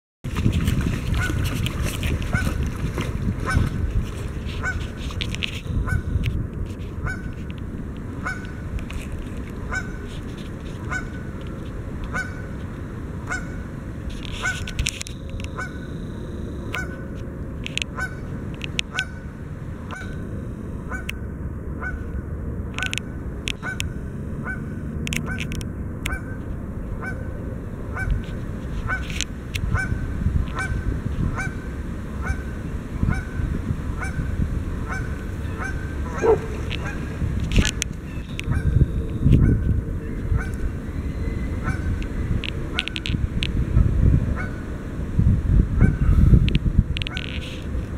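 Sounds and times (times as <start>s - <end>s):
splashing and wing flapping on water: 0.3s - 15.7s, 27.9s - 44.6s
goose honking: 4.5s - 6.2s, 7.0s - 7.5s, 8.2s - 8.6s, 9.7s - 10.1s, 10.8s - 11.3s, 12.1s - 12.6s, 13.2s - 13.6s, 14.2s - 14.8s, 15.4s - 17.2s, 17.8s - 19.3s, 19.9s - 21.2s, 21.8s - 22.2s, 22.8s - 26.4s, 27.0s - 40.7s, 41.5s - 42.0s.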